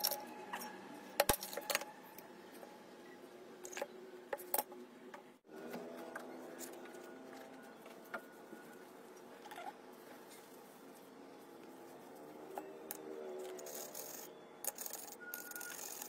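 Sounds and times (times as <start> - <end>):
toothbrush scrubbing metal ball: 13.4 - 16.0.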